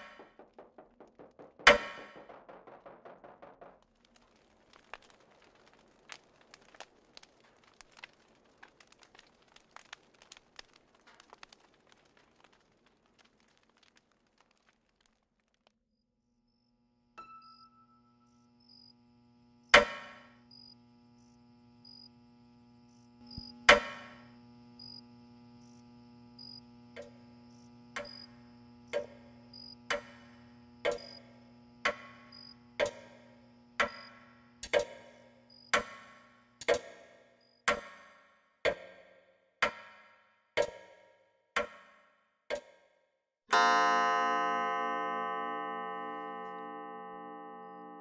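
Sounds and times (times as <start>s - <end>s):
low steady hum: 16.6s - 36.6s.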